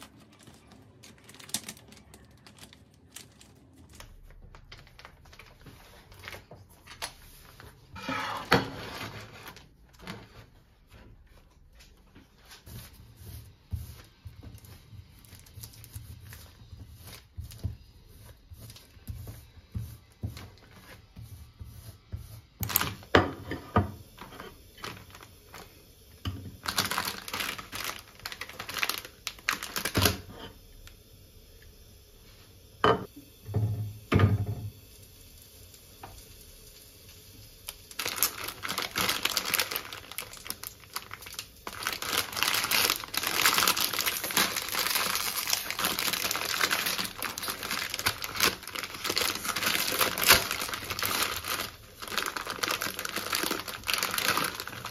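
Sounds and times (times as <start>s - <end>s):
packaging crinkling: 0.0s - 7.8s, 24.8s - 25.7s, 26.6s - 30.3s, 37.7s - 54.9s.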